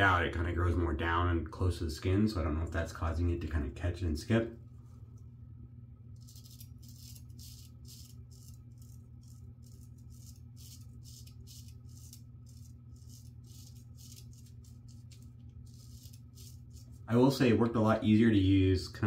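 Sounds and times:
faint low hum: 0:00.0 - 0:19.0
razor scraping stubble: 0:06.2 - 0:17.2.

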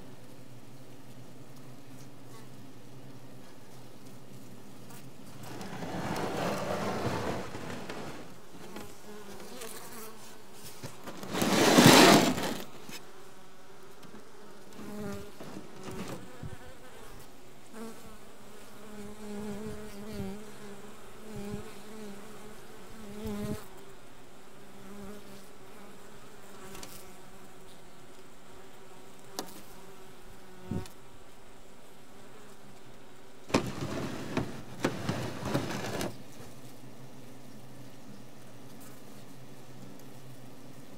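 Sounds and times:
bees buzzing: 0:28.4 - 0:40.9.

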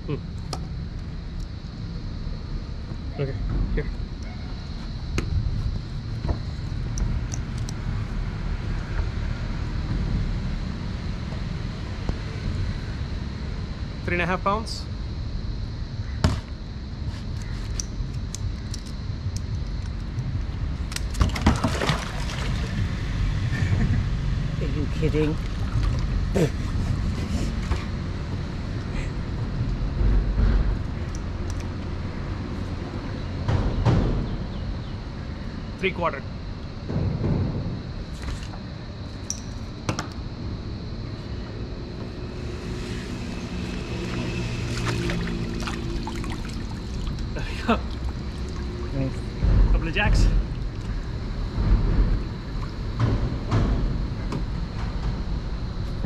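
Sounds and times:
steady low rumble: 0:22.2 - 0:56.0
passing vehicle engine hum: 0:40.9 - 0:49.7.

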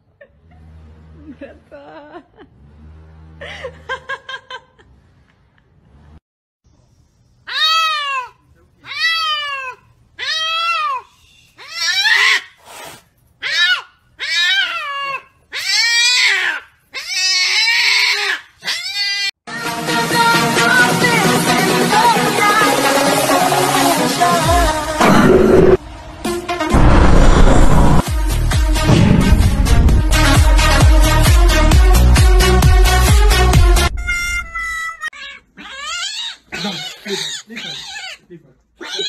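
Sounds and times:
upbeat music: 0:19.5 - 0:34.0.

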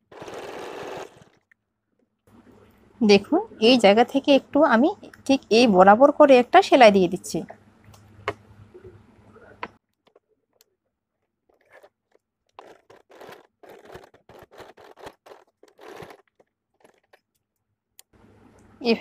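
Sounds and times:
sewing machine stitching: 0:00.0 - 0:01.4, 0:11.5 - 0:17.2
fabric rustling: 0:11.1 - 0:17.2.

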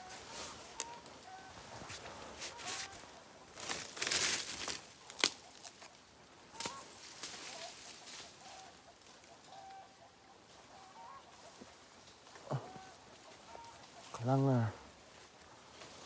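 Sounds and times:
chickens clucking: 0:00.0 - 0:03.6, 0:05.0 - 0:14.7.

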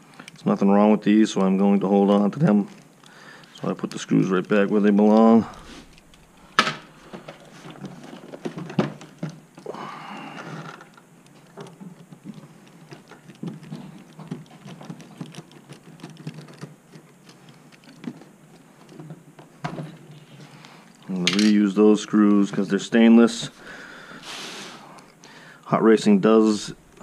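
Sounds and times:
small plastic and metal parts rattling: 0:01.0 - 0:21.7.

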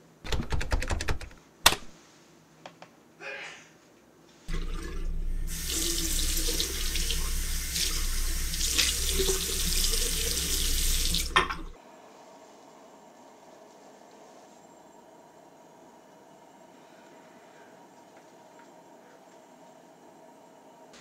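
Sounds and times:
hands rinsing under water: 0:04.5 - 0:11.8
tap running into washbasin: 0:04.5 - 0:11.8.

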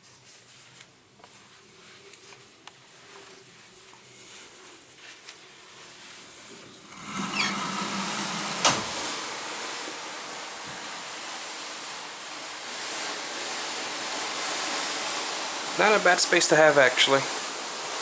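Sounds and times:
sliding glass door squeak: 0:06.8 - 0:09.9
wind and sea rushing: 0:06.9 - 0:13.6.

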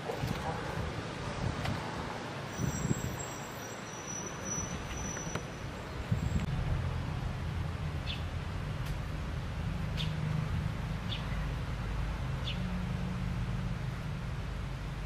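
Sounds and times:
low rumble: 0:06.1 - 0:12.2.

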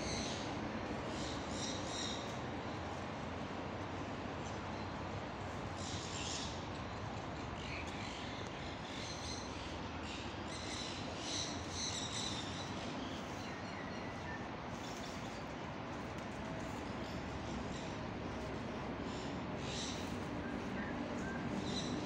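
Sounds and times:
steady background hiss: 0:00.0 - 0:22.0
birds chirping: 0:07.6 - 0:22.0.

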